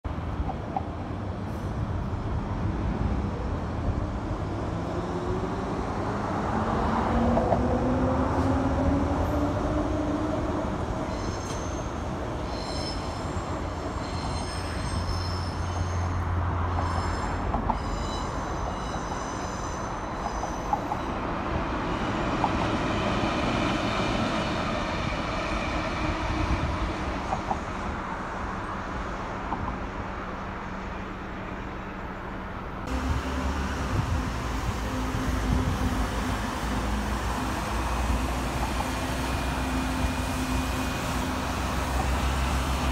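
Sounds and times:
wheels squealing on rails: 8.3s - 27.8s.

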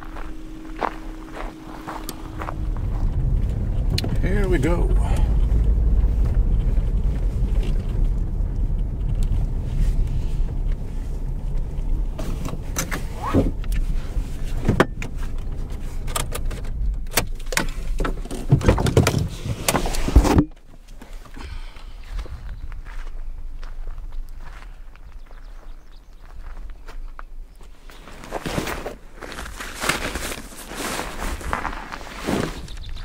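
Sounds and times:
car engine and tyres rumbling: 0.0s - 33.0s
knocks and rattles: 14.6s - 20.6s.

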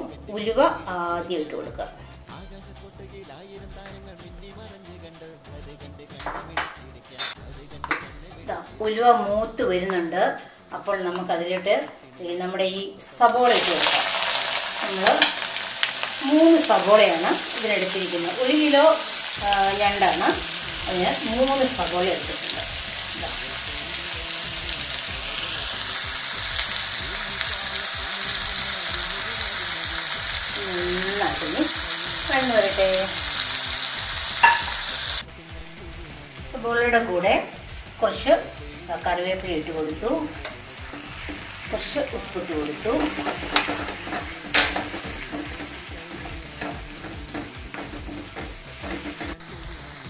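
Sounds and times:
onions sizzling in hot oil: 13.2s - 50.0s
wooden spatula scraping pan: 40.4s - 49.4s
spatula knocking on pan: 42.7s - 49.4s.

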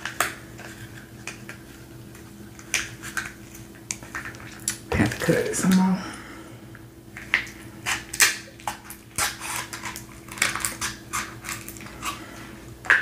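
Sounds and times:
scissors cracking crab shell: 7.3s - 12.2s.

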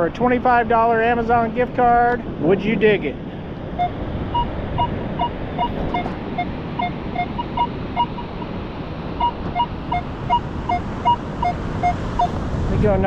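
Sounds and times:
metal detector two-tone beeps: 3.8s - 8.4s, 9.2s - 12.4s.

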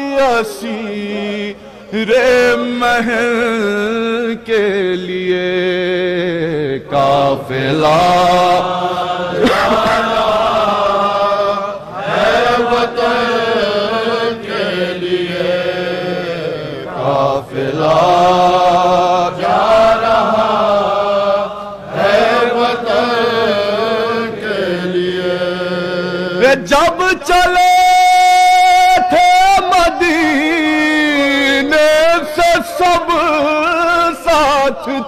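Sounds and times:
men chanting a lament: 0.0s - 35.0s.

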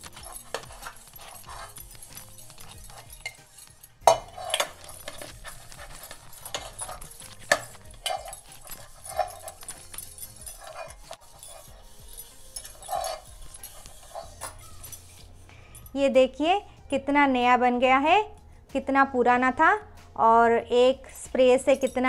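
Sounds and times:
cloth squeaking on metal pot: 0.0s - 15.9s
glass bangles clinking: 0.0s - 16.0s, 21.5s - 22.0s
pot knocking and clinking: 2.5s - 14.7s.

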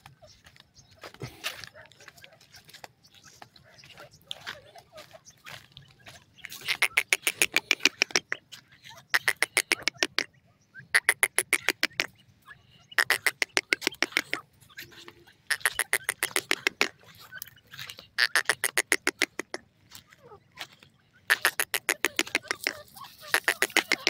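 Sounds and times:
francolins calling: 0.0s - 24.0s.

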